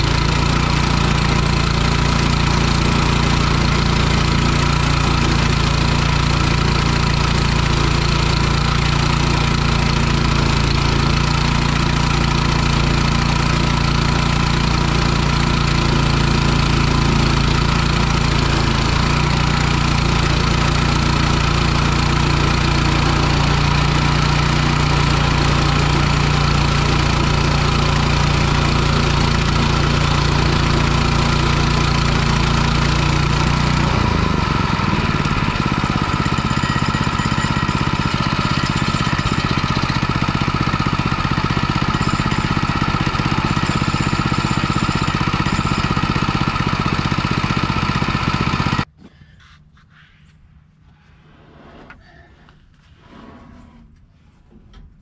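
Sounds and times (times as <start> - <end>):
sawmill engine running: 0.0 - 48.9.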